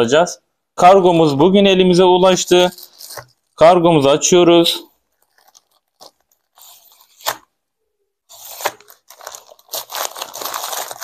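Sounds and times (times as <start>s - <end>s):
plastic bag crinkling and tearing: 2.6s - 3.6s, 5.0s - 7.5s, 8.3s - 11.0s.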